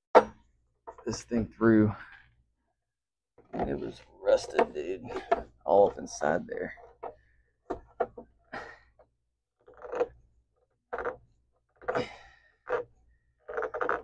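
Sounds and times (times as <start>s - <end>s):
tool scraping rust: 9.6s - 10.2s, 10.9s - 14.0s.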